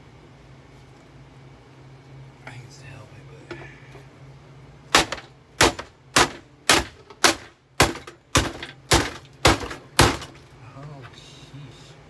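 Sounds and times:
hammer hitting vacuum cleaner: 5.0 - 10.4.

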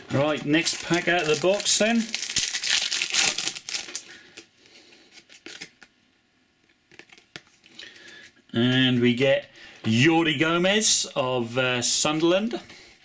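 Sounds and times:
foil pack tearing and crinkling: 0.1 - 4.4.

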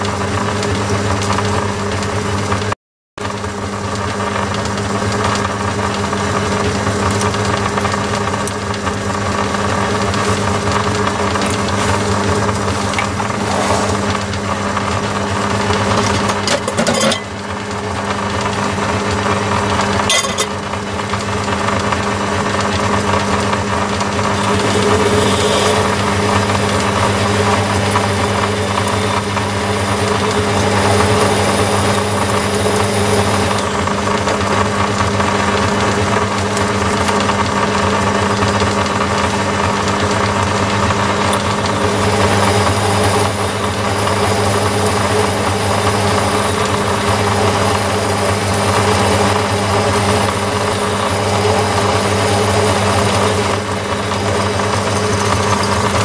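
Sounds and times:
lathe motor hum: 5.4 - 56.0
drill cutting steel: 24.2 - 34.1, 41.3 - 56.0.

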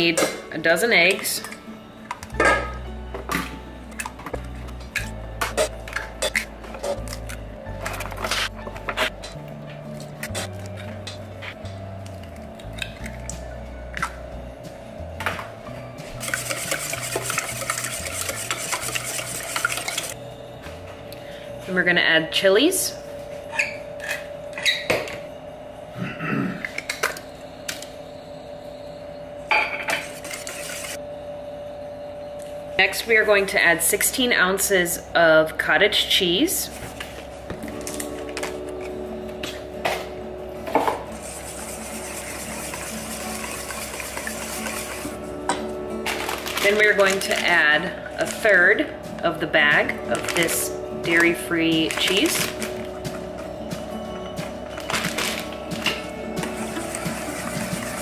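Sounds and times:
whisk beating eggs in metal bowl: 16.2 - 20.2, 30.2 - 31.0, 41.1 - 45.2, 56.5 - 58.0.

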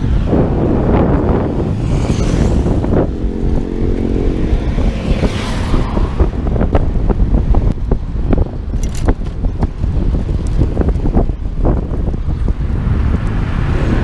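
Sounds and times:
vehicle engine hum passing: 0.0 - 7.4
road traffic: 0.0 - 14.0
wind buffeting microphone: 0.0 - 14.0.

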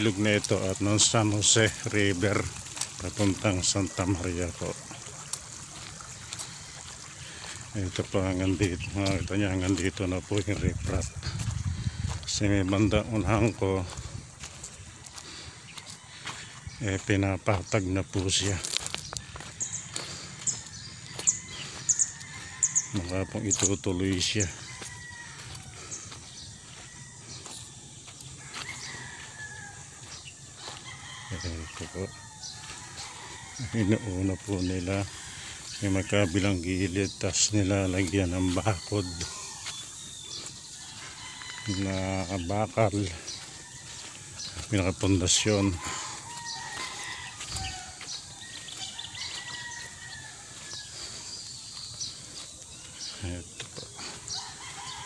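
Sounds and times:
footsteps on dirt and gravel: 0.0 - 55.0
roosters crowing: 0.0 - 55.0
distant bird calls: 11.0 - 55.0.

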